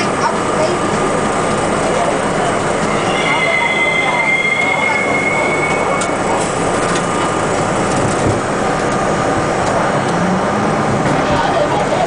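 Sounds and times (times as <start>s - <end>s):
subway train rumble and hiss: 0.0s - 12.0s
high wheel squeal: 2.7s - 6.4s.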